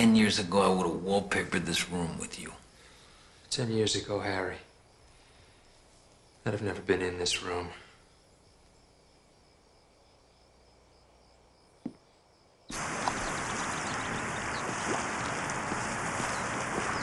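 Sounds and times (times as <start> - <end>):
swimmer splashing in a pool: 12.7 - 17.0.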